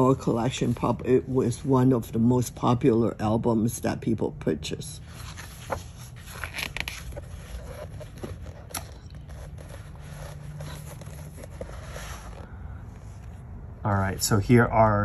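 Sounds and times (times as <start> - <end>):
paper pages rustling: 5.0 - 12.5
soft paper crackles: 5.0 - 12.6.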